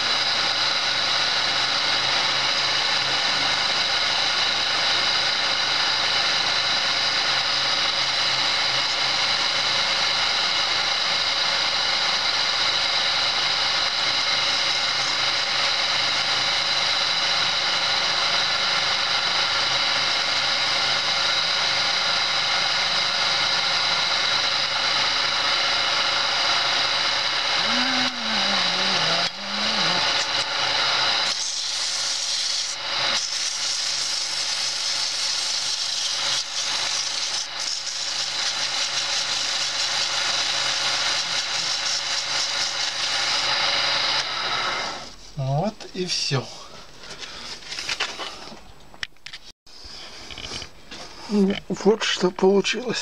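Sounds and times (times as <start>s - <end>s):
chisel cutting spinning wood: 0.0s - 45.2s
wood lathe high whine: 0.0s - 45.7s.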